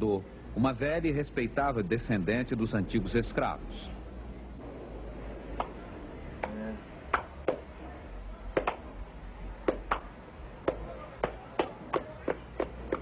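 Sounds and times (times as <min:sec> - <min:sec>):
sharp hand claps: 0:06.4 - 0:07.6, 0:08.6 - 0:08.8, 0:09.7 - 0:10.1, 0:10.7 - 0:13.0.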